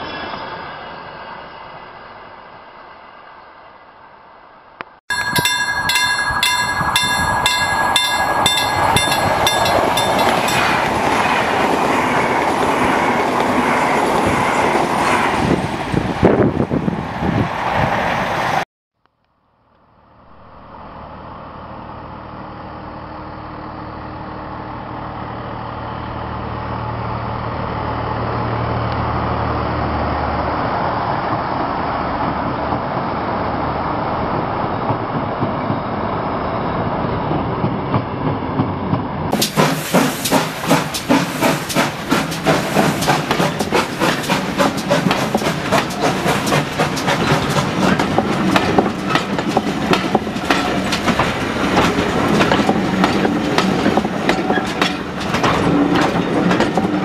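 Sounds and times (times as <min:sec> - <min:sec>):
electric train passing at speed: 0:00.0 - 0:18.6, 0:19.7 - 0:57.0
diesel locomotive engine rumble: 0:01.9 - 0:18.6, 0:19.6 - 0:57.0
high whining tones: 0:05.1 - 0:11.0.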